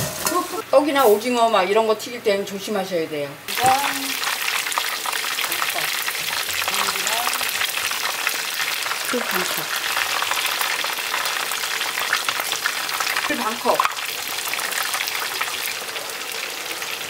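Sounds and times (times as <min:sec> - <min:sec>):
garlic sizzling in oil: 0:03.5 - 0:17.0.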